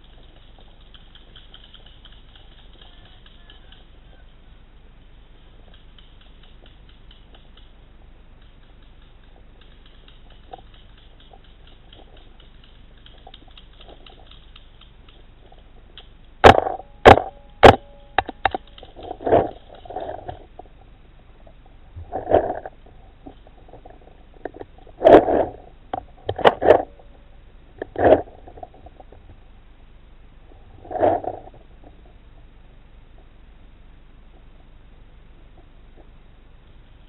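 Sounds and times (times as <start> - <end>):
dull pops and thuds: 16.4 - 20.4.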